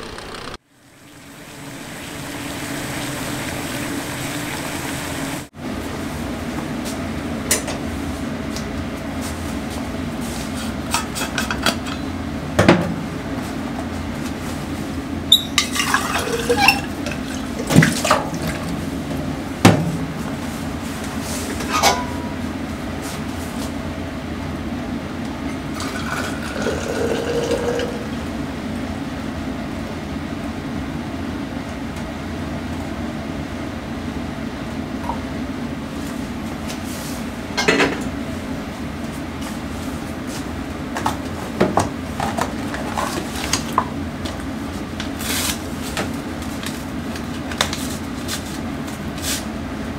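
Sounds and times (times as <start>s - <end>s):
steady low hum: 0.0s - 49.9s
metal kitchenware clanking: 15.3s - 18.7s, 21.6s - 22.4s
tea pouring into a flask: 25.8s - 28.0s.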